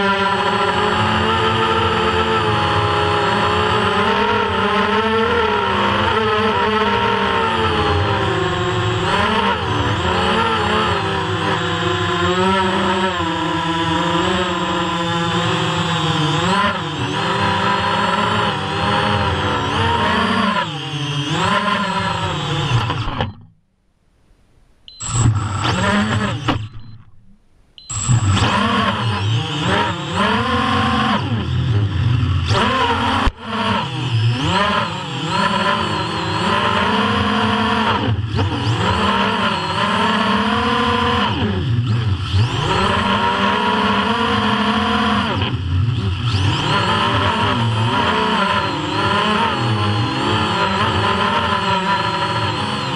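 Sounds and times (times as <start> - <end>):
quadcopter motors and propellers: 0.0 - 23.5, 24.9 - 27.0, 27.8 - 52.9.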